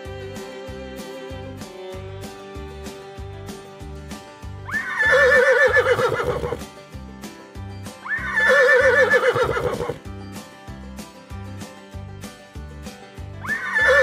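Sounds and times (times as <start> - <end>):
background music with beat: 0.0 - 14.0
horse whinnying: 4.7 - 6.6, 8.0 - 10.0, 13.4 - 14.0.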